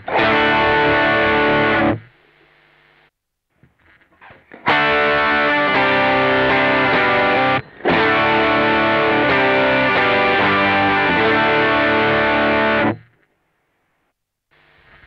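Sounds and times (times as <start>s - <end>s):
overdriven electric guitar: 0.0s - 2.1s, 4.0s - 13.2s.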